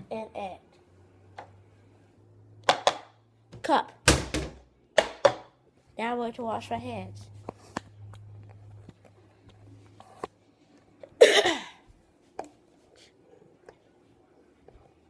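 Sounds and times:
person coughing: 11.2 - 11.9.

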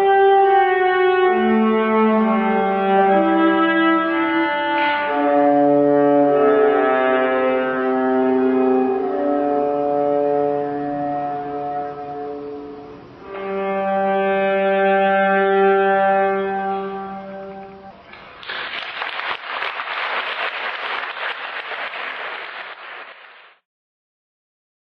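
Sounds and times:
viola long bowed notes: 0.0 - 18.2
applause: 18.1 - 23.6.

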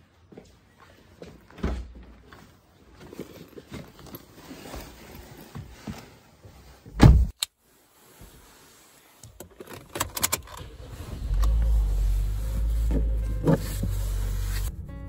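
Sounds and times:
car engine rumbling: 9.8 - 15.0.

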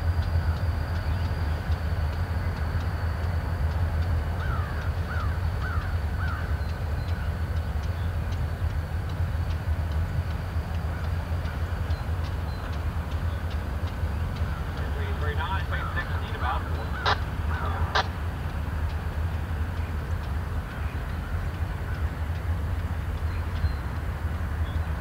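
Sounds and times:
diesel locomotives rumbling: 0.0 - 25.0
bird calling: 4.4 - 8.4, 10.8 - 18.2.

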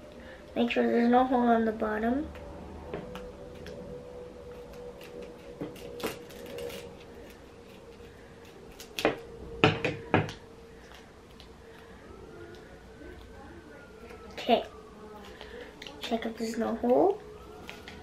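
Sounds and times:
scissors snipping paper: 4.5 - 9.3.

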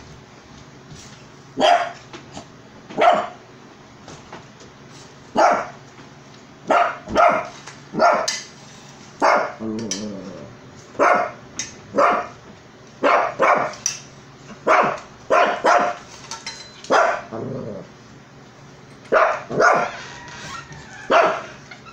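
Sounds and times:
small dog barking: 1.6 - 2.0, 3.0 - 3.4, 5.3 - 5.8, 6.6 - 8.3, 9.2 - 9.6, 11.0 - 12.4, 13.0 - 13.8, 14.6 - 16.0, 16.9 - 17.3, 19.1 - 19.9, 21.1 - 21.5.

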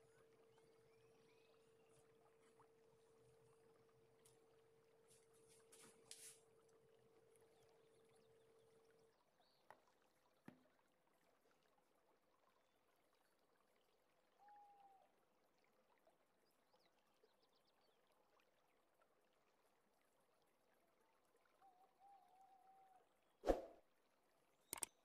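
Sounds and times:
faint wavering tone: 0.0 - 5.5.

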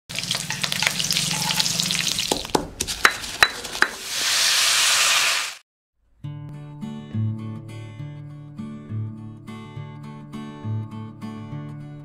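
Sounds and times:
water hissing in hot pan: 0.1 - 2.6, 3.2 - 5.6
spices crackling in hot oil: 0.1 - 5.6
metal spatula knocking on pan: 2.2 - 4.0.

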